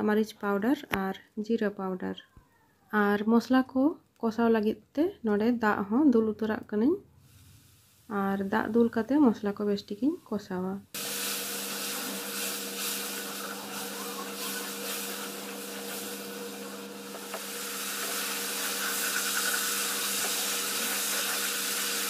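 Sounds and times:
masala sizzling in a pan: 7.2s - 22.0s.

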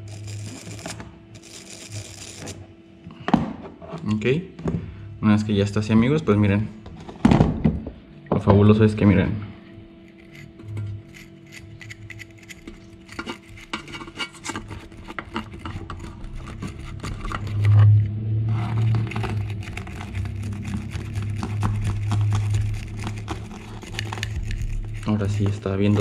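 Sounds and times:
wire brush scratching metal: 0.0s - 2.6s, 10.0s - 26.0s
low hum: 4.1s - 26.0s.

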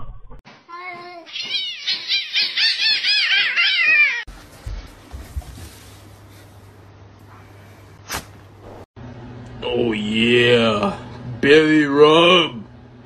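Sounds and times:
cat chirping: 1.3s - 4.2s.

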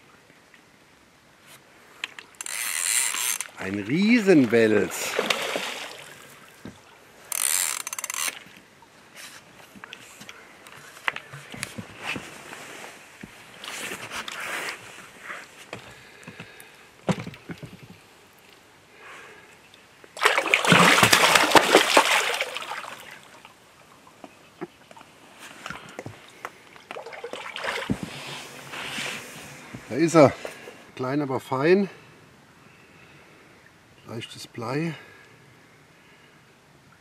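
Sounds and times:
water splashing: 3.0s - 7.2s, 20.2s - 24.2s, 25.8s - 29.8s.

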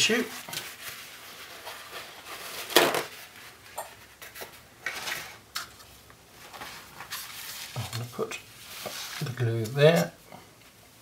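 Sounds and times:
items set down on hard surface: 2.7s - 3.1s.

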